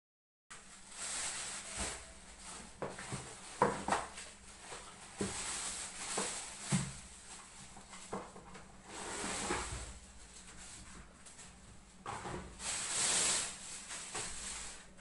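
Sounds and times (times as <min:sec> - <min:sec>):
plastic packaging crinkling: 0:00.8 - 0:07.7, 0:12.6 - 0:15.0.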